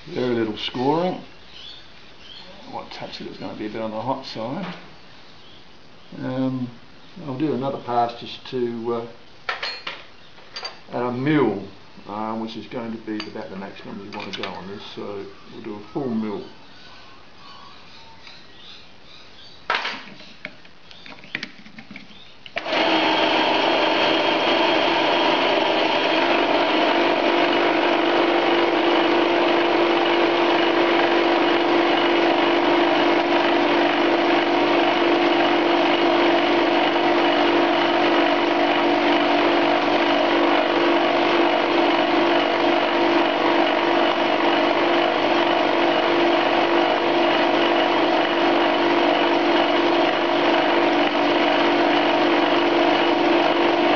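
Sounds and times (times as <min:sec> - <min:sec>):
lathe milling steel: 0:22.6 - 0:53.9.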